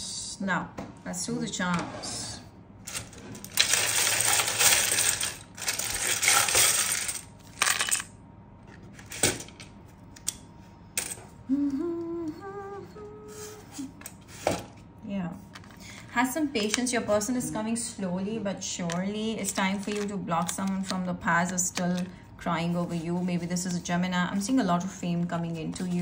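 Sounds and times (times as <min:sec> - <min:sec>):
plastic tiles and charms rattling: 0:02.9 - 0:08.1, 0:19.4 - 0:20.7
person humming: 0:11.4 - 0:14.0, 0:17.3 - 0:17.8.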